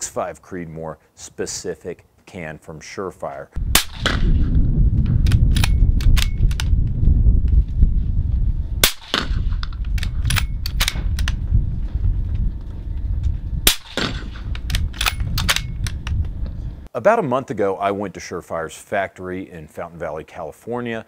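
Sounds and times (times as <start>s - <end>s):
wind buffeting microphone: 3.6s - 16.9s
gunshots: 3.7s - 4.6s, 8.8s - 9.6s, 13.6s - 15.6s.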